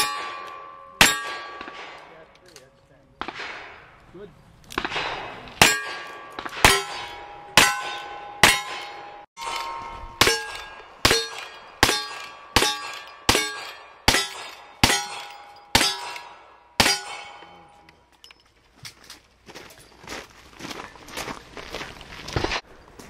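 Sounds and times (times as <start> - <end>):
steel target clanging: 0.0 - 2.1, 5.6 - 17.9
gunshots: 0.0 - 2.3, 3.2 - 4.0, 4.7 - 17.7.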